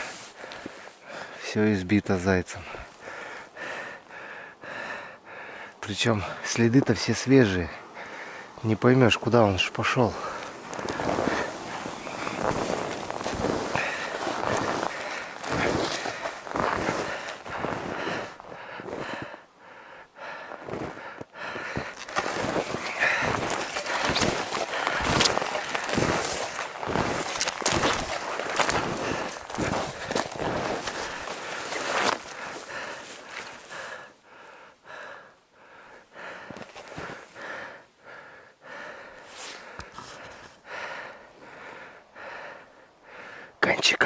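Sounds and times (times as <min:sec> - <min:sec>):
footsteps crunching through snow: 0:00.0 - 0:00.9, 0:09.8 - 0:19.3, 0:20.6 - 0:34.0
heavy breathing: 0:00.0 - 0:01.5, 0:02.5 - 0:06.5, 0:07.7 - 0:08.6, 0:10.1 - 0:43.6.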